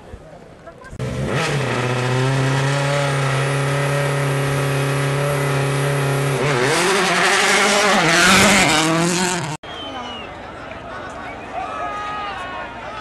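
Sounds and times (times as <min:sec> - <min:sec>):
engine revs blipped: 0:01.0 - 0:09.9.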